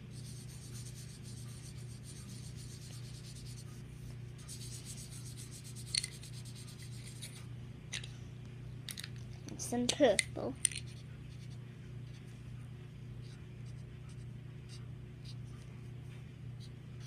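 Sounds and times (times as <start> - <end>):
marker scribbling on paper: 0.0 - 3.8, 4.4 - 7.4
steady low hum: 0.0 - 17.0.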